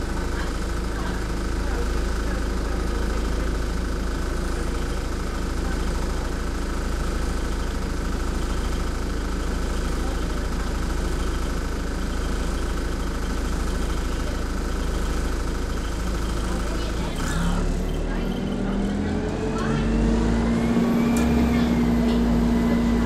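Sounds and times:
bus diesel engine idling: 0:00.0 - 0:23.0.

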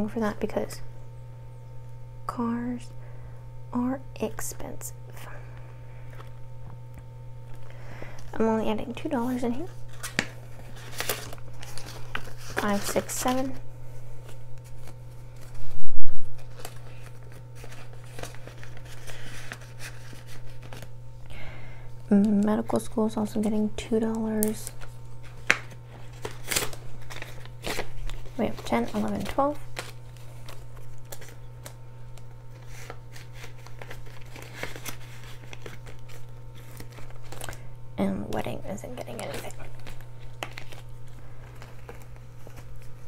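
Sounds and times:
banknotes rustling and crinkling: 0:07.5 - 0:21.0, 0:22.2 - 0:43.0.

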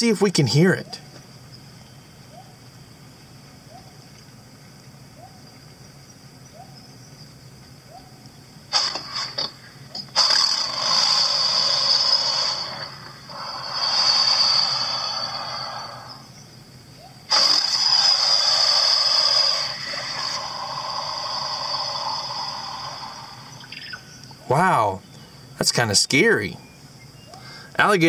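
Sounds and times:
alligator calls: 0:07.8 - 0:16.4, 0:17.0 - 0:25.0.

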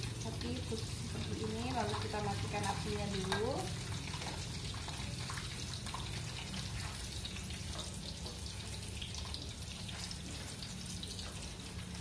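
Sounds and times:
hot oil sizzling: 0:00.0 - 0:12.0.

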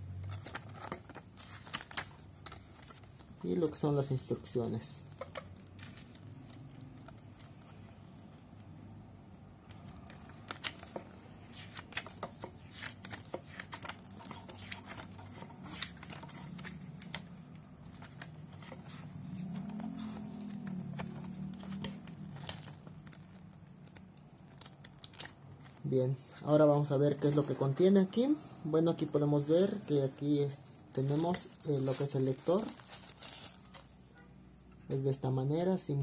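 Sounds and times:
paper pages turning and rustling: 0:00.1 - 0:08.8, 0:09.6 - 0:24.0.

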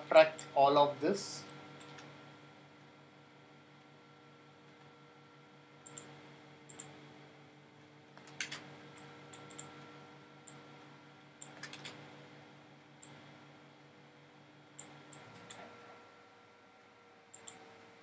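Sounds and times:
steady low hum: 0:00.0 - 0:18.0
computer mouse clicks: 0:05.8 - 0:06.1, 0:06.7 - 0:06.9, 0:08.2 - 0:09.8, 0:11.4 - 0:12.0, 0:14.8 - 0:15.7, 0:17.3 - 0:17.6.

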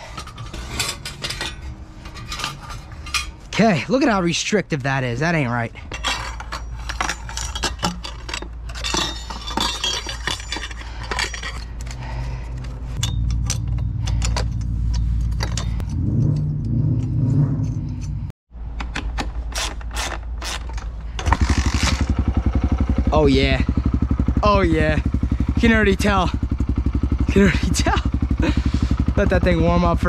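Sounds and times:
tools and metal parts clinking: 0:00.0 - 0:22.1.

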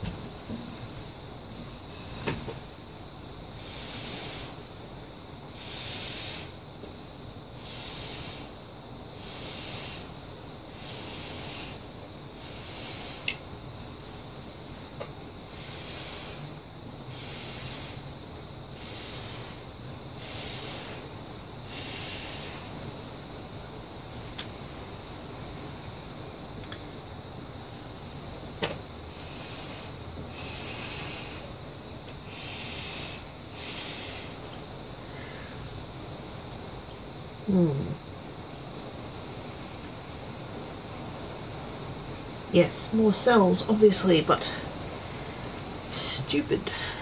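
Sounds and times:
air puffs through a straw: 0:03.5 - 0:04.6, 0:05.6 - 0:06.6, 0:07.6 - 0:08.6, 0:09.2 - 0:11.8, 0:12.4 - 0:13.4, 0:15.4 - 0:18.1, 0:18.7 - 0:22.9, 0:27.6 - 0:31.6, 0:32.2 - 0:35.7.

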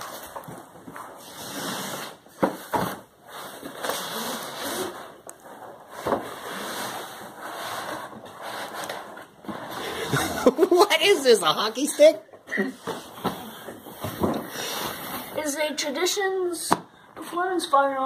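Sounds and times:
cardboard scraping on cardboard: 0:00.9 - 0:10.6.

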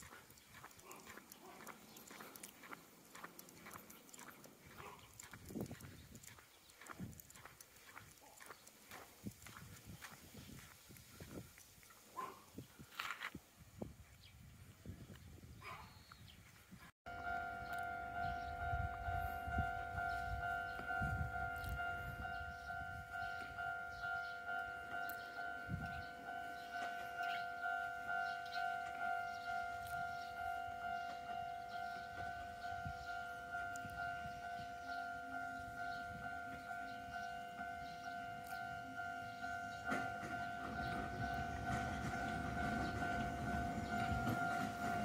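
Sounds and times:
level crossing alarm clanging: 0:17.1 - 0:45.0
train rumble: 0:17.2 - 0:45.0.

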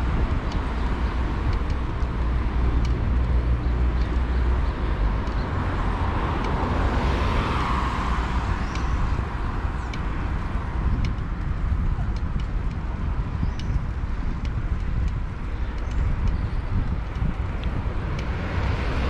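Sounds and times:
road traffic rumble: 0:00.0 - 0:19.0
vehicle passing by: 0:03.0 - 0:09.7, 0:17.6 - 0:19.0.

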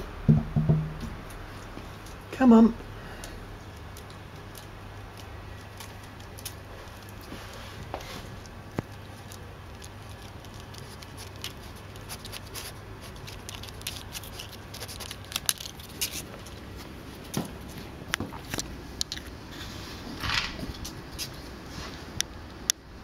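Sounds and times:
badger snuffling and crunching: 0:03.2 - 0:20.1.

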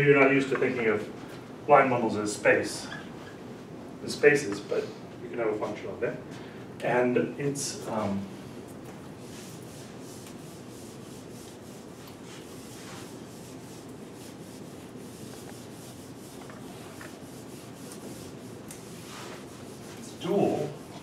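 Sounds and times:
eraser rubbing on whiteboard: 0:09.2 - 0:21.0.

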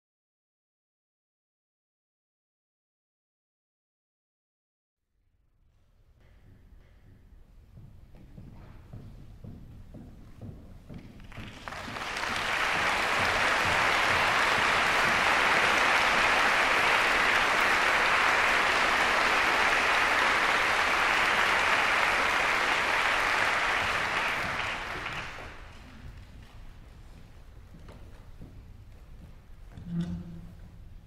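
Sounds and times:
audience applauding: 0:11.2 - 0:26.0.

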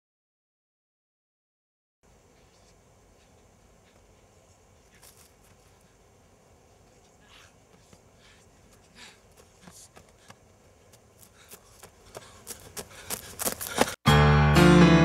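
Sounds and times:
strummed guitar music: 0:14.1 - 0:15.0.

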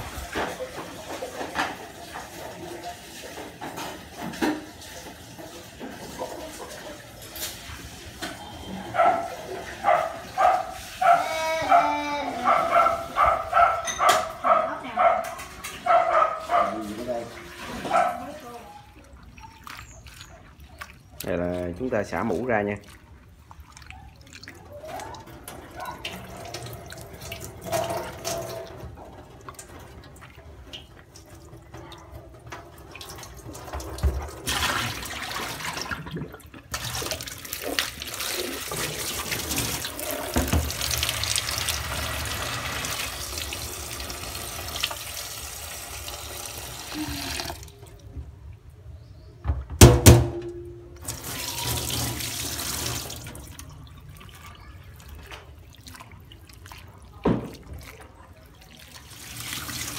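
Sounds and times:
tap water running into sink: 0:00.0 - 0:10.6, 0:24.8 - 0:48.3, 0:49.8 - 0:59.9
loud knock: 0:49.5 - 0:50.6.

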